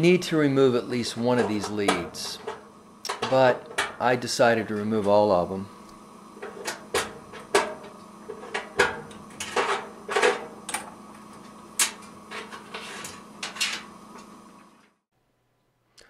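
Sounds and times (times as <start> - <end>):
connectors clicking and scraping: 6.4 - 14.3.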